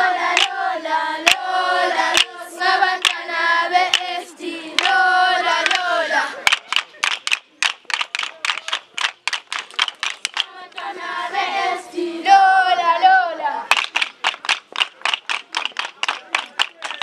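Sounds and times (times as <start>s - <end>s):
group of voices chanting: 0.0s - 6.6s, 10.4s - 13.7s
wooden dumbbells clacking: 0.3s - 0.5s, 3.0s - 3.2s, 5.6s - 5.8s, 6.4s - 10.9s, 13.7s - 17.0s.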